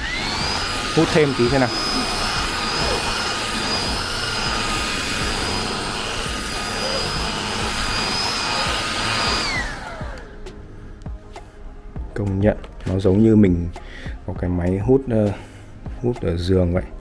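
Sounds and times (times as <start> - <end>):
handheld vacuum cleaner whine: 0.0 - 10.6.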